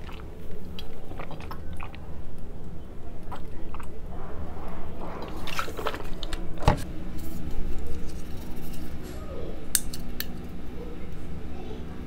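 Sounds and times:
drinking gulps: 0:00.0 - 0:06.8.

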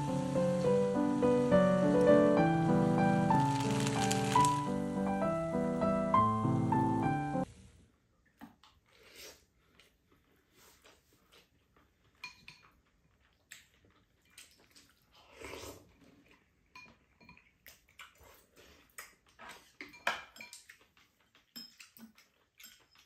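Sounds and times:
utensils clinking on ceramic bowls: 0:12.2 - 0:12.7, 0:19.8 - 0:20.8, 0:21.5 - 0:22.0, 0:22.6 - 0:23.0.

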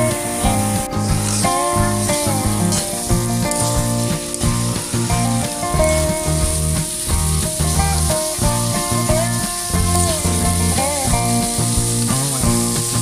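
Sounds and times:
background music with bass: 0:00.0 - 0:13.0
meat sizzling in a wok: 0:00.0 - 0:13.0.

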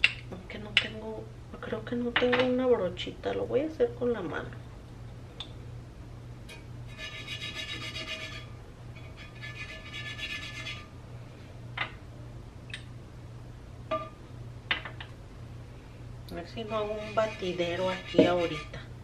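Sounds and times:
hand rubbing paste on clay pot: 0:16.6 - 0:18.9.

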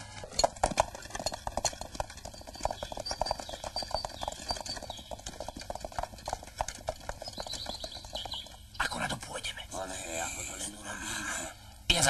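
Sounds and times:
horse hooves clip-clopping: 0:00.0 - 0:08.8.

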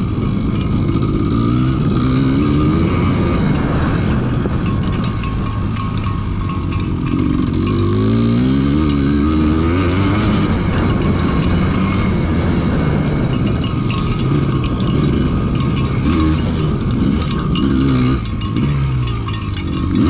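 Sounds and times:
dirt bike engine revving: 0:00.0 - 0:20.0
steady rushing noise: 0:00.0 - 0:20.0.

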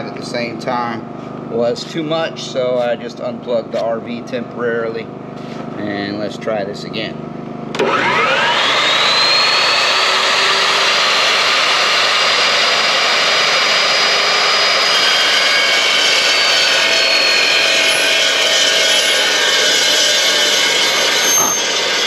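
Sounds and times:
chop saw whine: 0:06.0 - 0:22.0
saw blade screeching through steel: 0:07.8 - 0:22.0.

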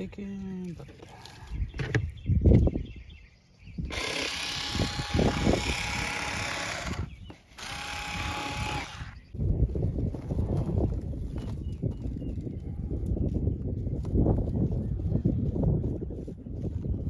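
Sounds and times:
electric rotary cutter whine: 0:03.9 - 0:09.2.

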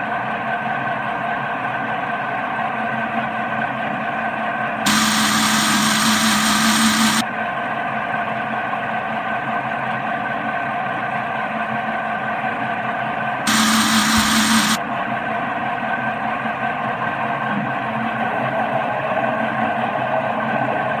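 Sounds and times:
electric blender running: 0:04.9 - 0:07.2, 0:13.5 - 0:14.8.

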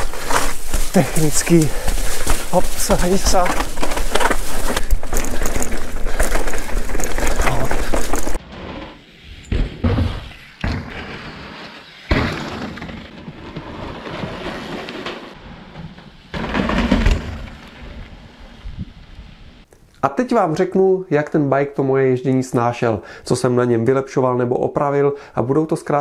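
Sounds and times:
bike thuds and clatters: 0:00.0 - 0:08.4, 0:09.4 - 0:11.3, 0:12.1 - 0:18.2
bike trail rumble: 0:00.0 - 0:19.7
wind on microphone: 0:17.9 - 0:19.6.

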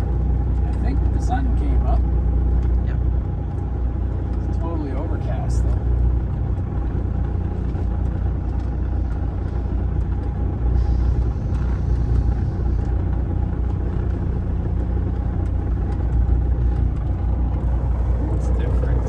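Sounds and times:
diesel truck engine rumbling: 0:00.0 - 0:19.0.

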